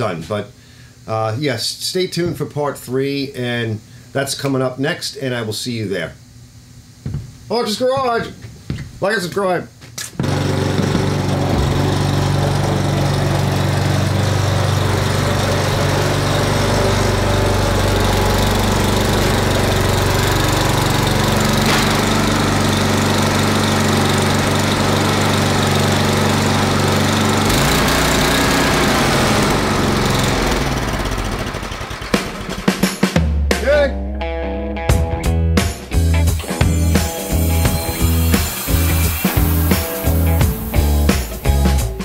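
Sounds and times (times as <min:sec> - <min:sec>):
snowblower engine running: 0:10.2 - 0:32.9, 0:36.1 - 0:42.0.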